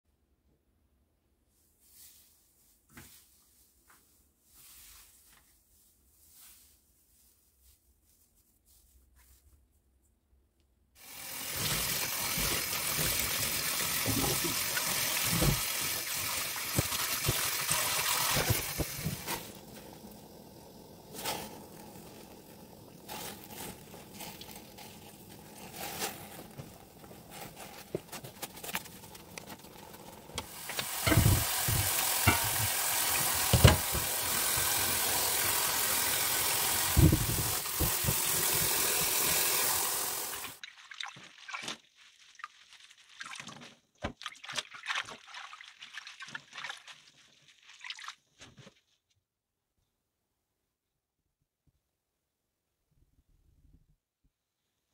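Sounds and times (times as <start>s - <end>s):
tap water running hard: 11.0s - 25.4s, 30.2s - 40.6s
splashes in a steel bowl: 36.6s - 48.3s.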